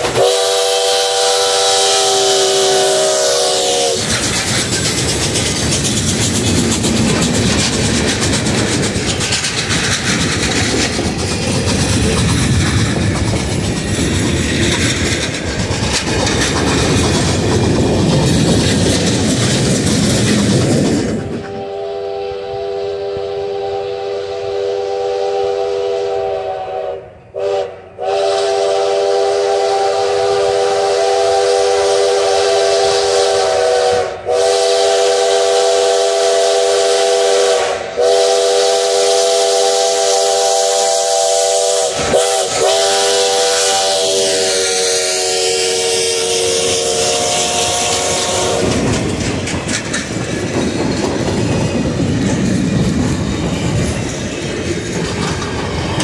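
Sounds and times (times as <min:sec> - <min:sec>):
locomotive whistle blasts: 0:00.0 - 0:04.1, 0:21.5 - 0:48.8
train wheels clacking over rails: 0:00.0 - 0:21.8, 0:26.8 - 0:56.0.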